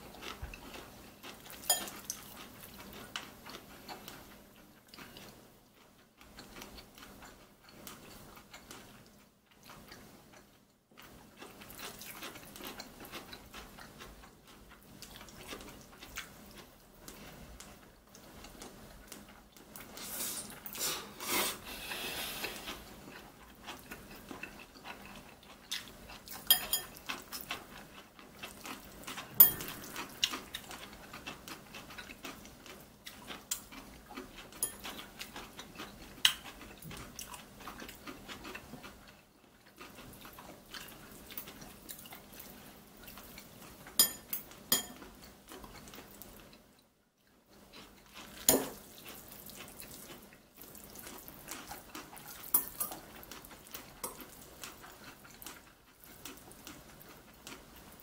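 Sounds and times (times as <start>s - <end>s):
soft stirring of noodles: 0.0s - 58.0s
chopsticks clinking against bowls: 1.6s - 2.2s, 26.5s - 27.1s, 29.4s - 30.0s, 34.6s - 35.0s, 44.0s - 45.1s, 52.4s - 53.0s.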